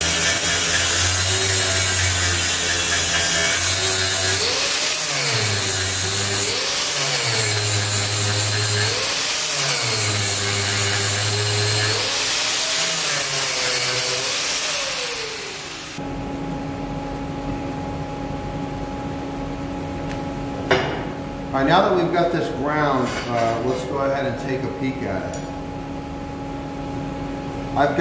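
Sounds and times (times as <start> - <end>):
angle grinder grinding steel: 0.0 - 16.0.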